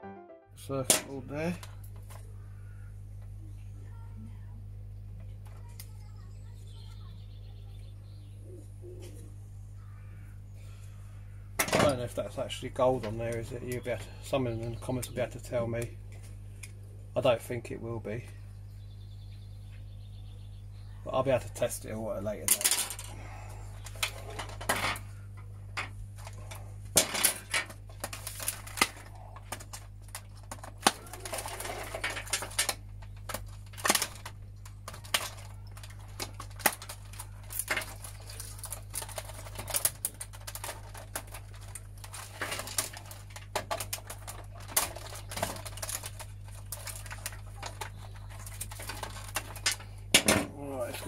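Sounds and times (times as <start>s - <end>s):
steady low hum: 0.5s - 51.0s
clicks and rattles of plastic casing: 25.8s - 51.0s.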